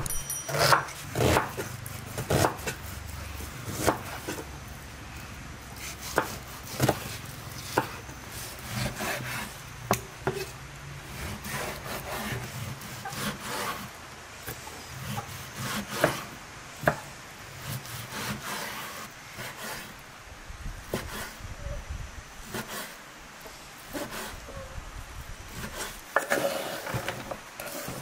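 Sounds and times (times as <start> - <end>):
knife slicing raw meat: 5.8 - 10.5.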